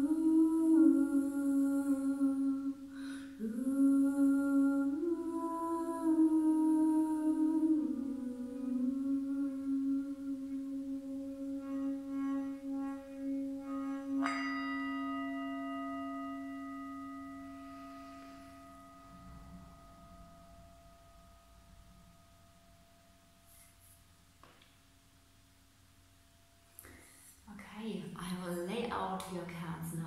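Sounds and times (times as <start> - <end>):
singing bowl ringing: 11.6 - 23.6
singing bowl struck: 13.6 - 23.4.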